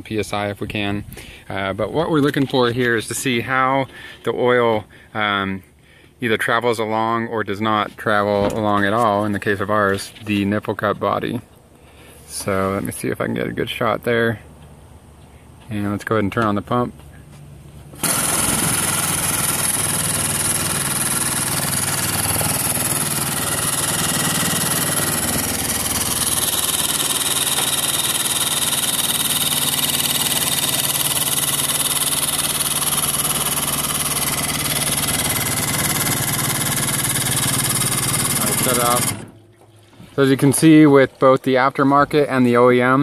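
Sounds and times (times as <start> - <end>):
hydraulic pump humming and hissing: 17.9 - 40.2.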